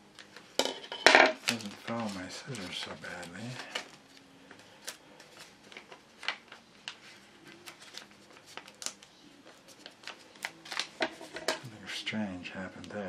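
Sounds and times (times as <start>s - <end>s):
paper crackles: 1.4s - 11.5s
paper rustling: 1.4s - 11.6s.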